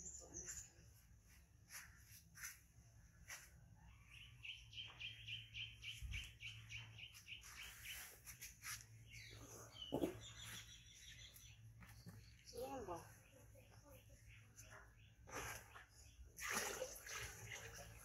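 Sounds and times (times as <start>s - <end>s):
faint clicks and scuffs: 0.4s - 3.8s, 7.1s - 9.3s
bird trilling high chirps: 3.9s - 8.4s.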